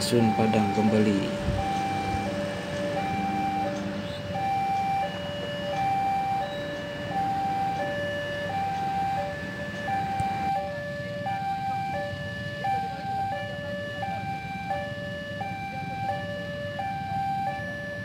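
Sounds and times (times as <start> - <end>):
train rumbling past: 0.9 - 10.0.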